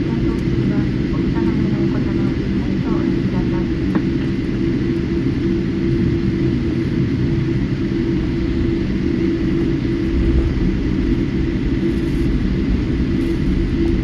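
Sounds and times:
airliner cabin engine rumble: 0.0 - 14.0.

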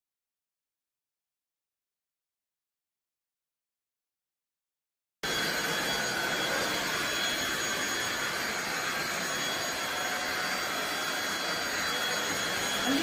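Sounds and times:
stick vacuum cleaner running: 5.2 - 13.0.

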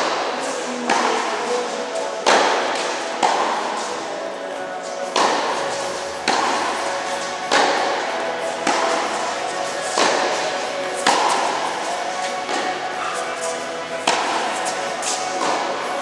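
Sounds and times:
tennis ball hits and bounces: 0.0 - 1.3, 2.2 - 4.1, 4.8 - 16.0
sustained tones: 0.0 - 16.0.

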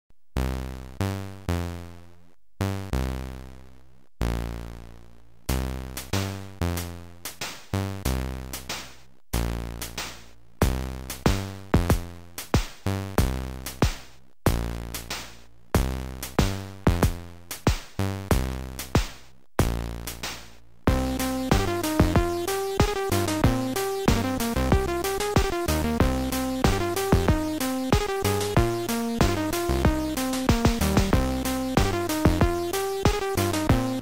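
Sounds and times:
synthesized electronic music: 20.9 - 34.0.

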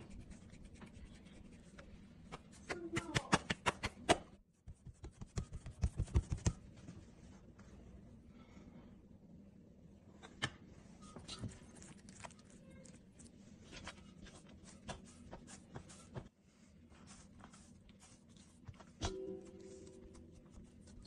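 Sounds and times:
dough scratching on a surface: 13.6 - 21.0.

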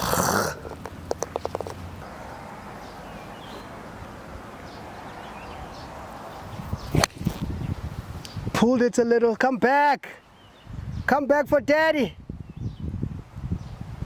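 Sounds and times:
open-air hiss: 0.0 - 14.0
golf club striking ball: 7.0 - 7.4.

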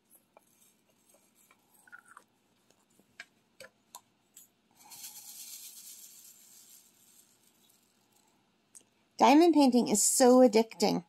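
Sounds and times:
rattling hiss of shaken beads: 4.7 - 8.4.

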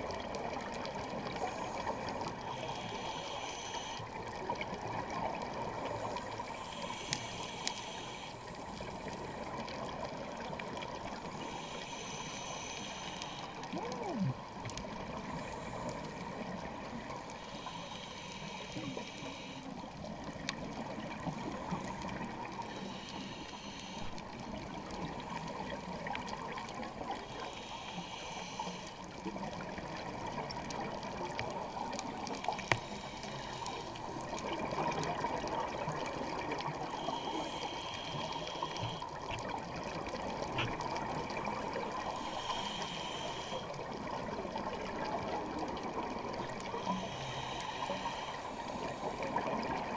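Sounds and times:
underwater watery wash: 0.0 - 49.9
scuba regulator breathing: 1.2 - 4.4, 5.8 - 9.5, 11.1 - 14.6, 15.2 - 19.8, 21.3 - 24.2, 27.0 - 29.2, 31.6 - 34.4, 35.8 - 39.4, 40.5 - 43.9, 45.9 - 49.9.

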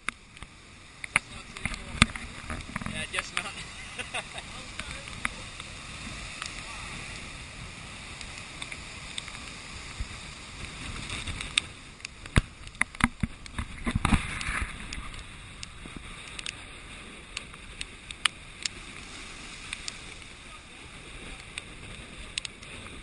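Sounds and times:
surf breaking over rocks: 0.0 - 23.0
wind buffeting microphone: 0.0 - 23.0
clicks and knocks on camera: 12.3 - 15.2.

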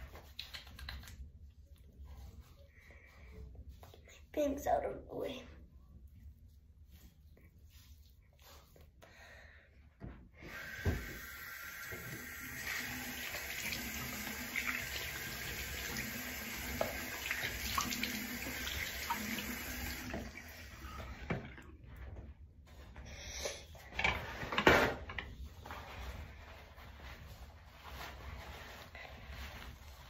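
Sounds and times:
sink tap running: 10.5 - 21.4.

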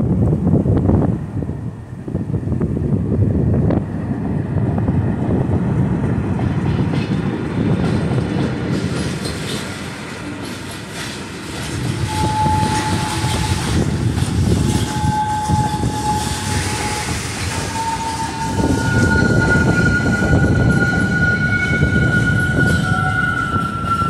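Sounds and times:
freight train rumbling: 0.0 - 24.0
wheels and couplings clacking: 6.1 - 24.0
high squeal: 12.0 - 24.0.

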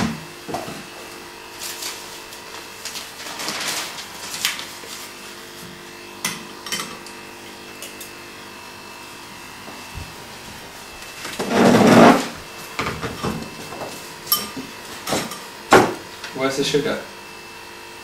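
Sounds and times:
rustling: 2.8 - 5.1.

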